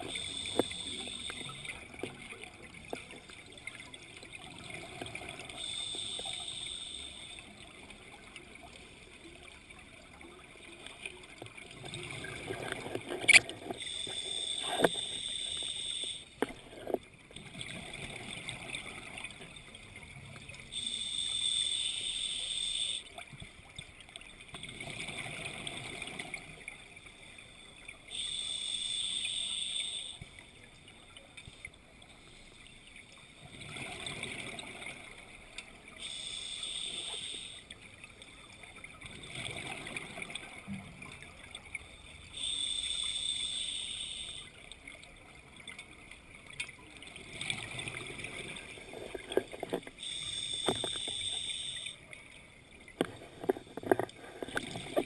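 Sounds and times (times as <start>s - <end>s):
hissing regulator inhalation: 0.0s - 1.6s, 5.6s - 7.4s, 13.7s - 17.0s, 20.8s - 23.1s, 28.1s - 30.2s, 36.0s - 37.6s, 42.4s - 44.5s, 50.0s - 52.0s.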